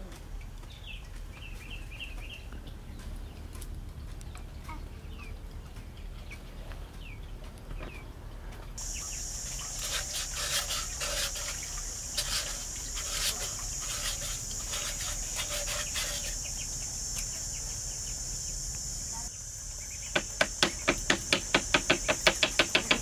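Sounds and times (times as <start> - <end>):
bird chirps: 8.8 - 23.0
high-pitched hiss: 8.8 - 23.0
sharp knocks and taps: 20.1 - 23.0.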